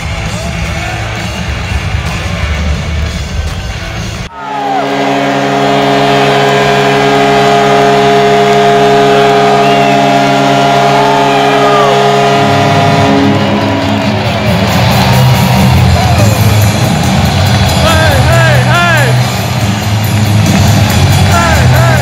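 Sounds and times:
crowd cheering and whistling: 0.0 - 2.6, 4.0 - 22.0
music: 0.0 - 4.3, 13.2 - 22.0
goal horn blast: 4.3 - 22.0.

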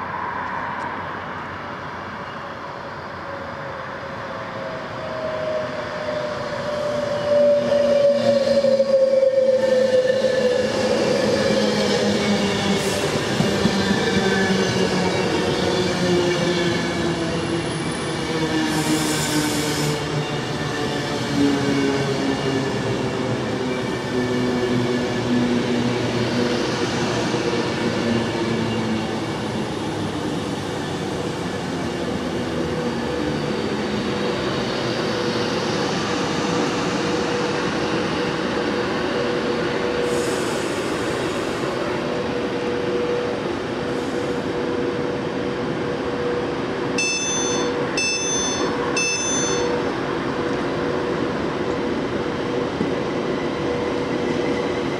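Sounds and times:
train wheels on rails: 4.3 - 54.9
short high-pitched beeps: 47.0 - 49.8.

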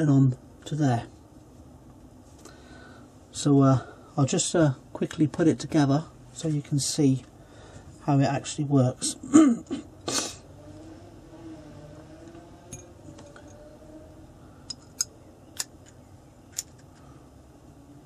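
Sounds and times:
metal parts clicking and tapping: 14.7 - 17.0.

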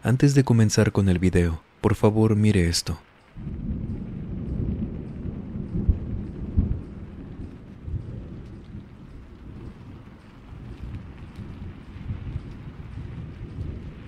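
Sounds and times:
steady rain: 0.0 - 14.0
thunder claps: 3.1 - 14.0
rolling thunder: 3.3 - 14.0.

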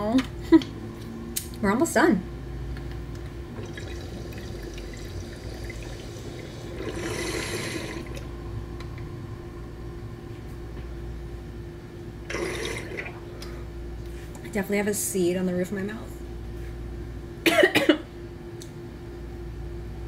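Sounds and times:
water bubbling in a bong: 3.5 - 8.3, 12.3 - 13.3.

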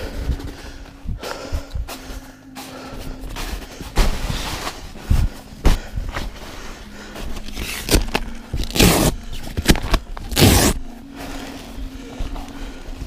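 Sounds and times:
nylon fabric rustling: 3.3 - 13.0.

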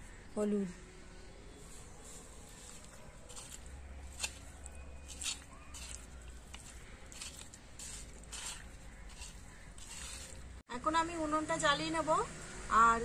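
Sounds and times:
wet squelches of fish in bowl: 2.5 - 10.6.

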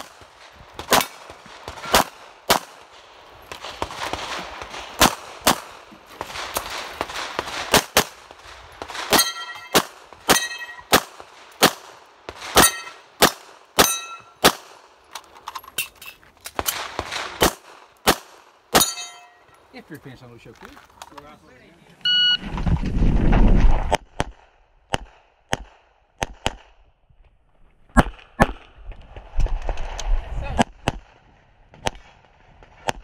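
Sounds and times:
pistol shots: 0.0 - 2.9, 3.5 - 14.9, 16.6 - 19.2, 24.0 - 26.7
steel targets ringing: 9.1 - 10.9, 12.6 - 13.0, 13.8 - 14.4, 18.8 - 19.5.

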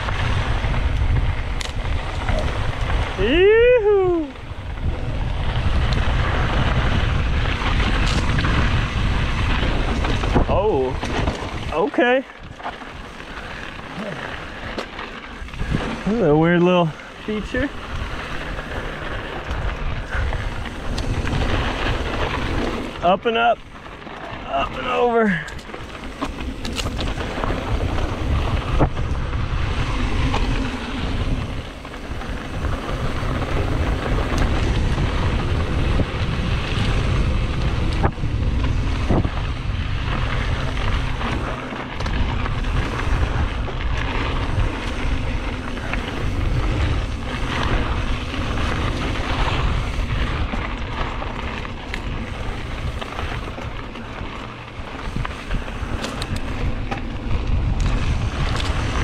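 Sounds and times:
bike clicks and rattles: 0.0 - 59.0
wind rumbling on microphone: 0.0 - 59.0
tyres hissing on dirt: 11.6 - 28.8, 29.6 - 56.8.

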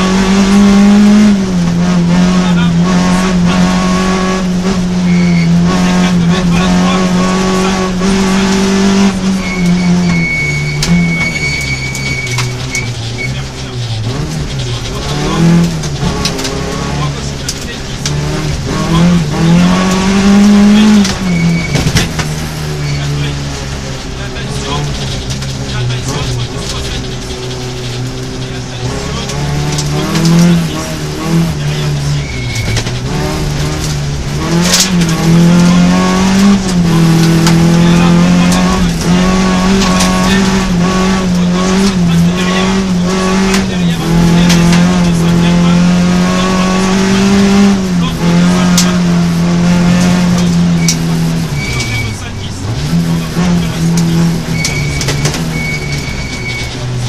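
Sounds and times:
gravel striking car: 0.0 - 57.0
rally car engine revving: 0.0 - 57.0.

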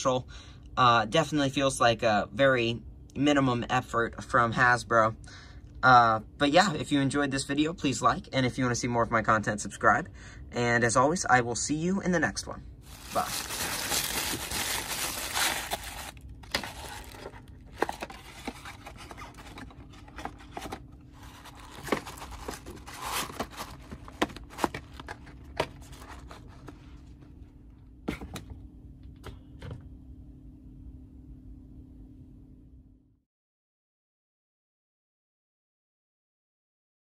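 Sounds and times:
tissue paper crinkling: 12.9 - 25.2.

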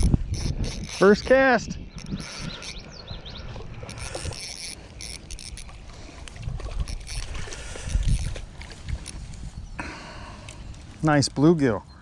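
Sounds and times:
fishing reel clicking: 0.0 - 2.9, 3.8 - 8.4
wind rumble on microphone: 0.0 - 4.5, 6.2 - 10.9.

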